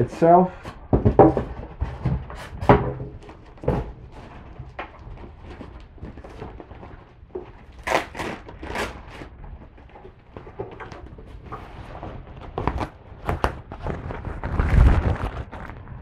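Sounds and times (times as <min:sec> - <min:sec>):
box knocks and thumps: 0:00.9 - 0:04.9.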